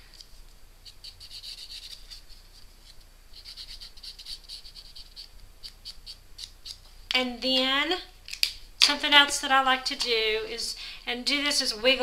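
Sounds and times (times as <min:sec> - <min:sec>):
marker scratching on paper: 0:00.8 - 0:06.8.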